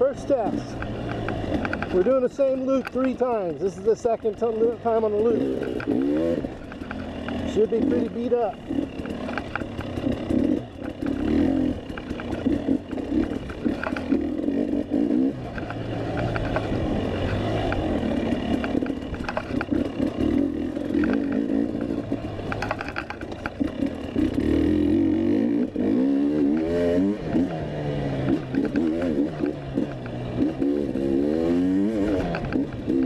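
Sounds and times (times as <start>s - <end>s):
dirt bike engine revving: 0.0s - 33.0s
bike clattering over terrain: 4.3s - 24.8s.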